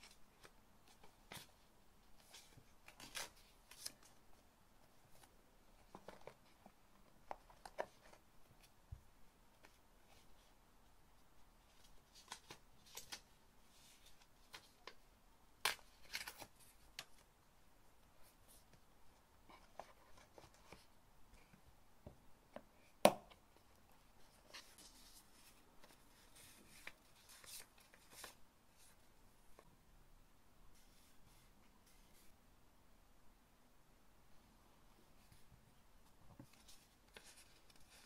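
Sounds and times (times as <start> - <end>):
paper booklet pages rustling: 0.0 - 8.8, 11.6 - 17.3, 19.5 - 20.9, 23.8 - 29.7, 35.2 - 38.0.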